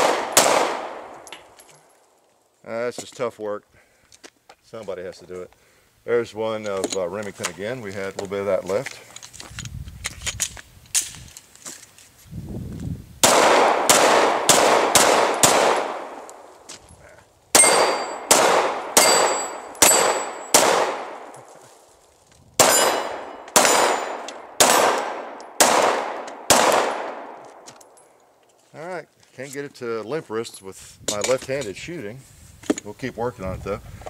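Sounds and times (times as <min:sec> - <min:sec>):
pistol shots: 0:00.0 - 0:01.2, 0:13.2 - 0:16.5, 0:17.5 - 0:21.3, 0:22.6 - 0:27.6
bullets clanging on steel plates: 0:17.6 - 0:18.4, 0:19.0 - 0:20.6, 0:22.6 - 0:25.5.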